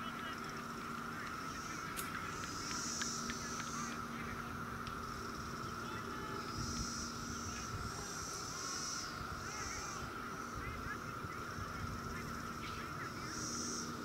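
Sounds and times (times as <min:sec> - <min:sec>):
birds chirping: 0:00.0 - 0:14.0
high-pitched hum: 0:00.0 - 0:14.0
wind rumble on microphone: 0:04.2 - 0:13.3.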